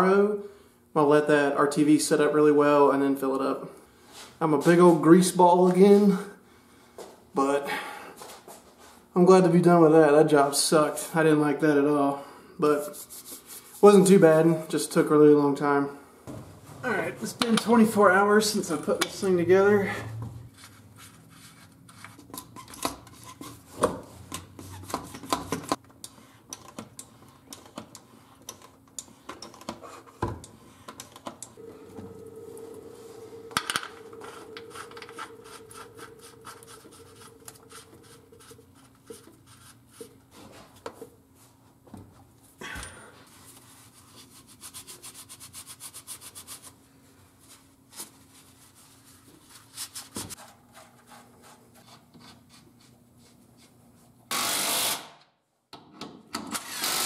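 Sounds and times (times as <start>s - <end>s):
steady hum: 31.5s - 39.6s
rag rubbing: 31.6s - 40.0s.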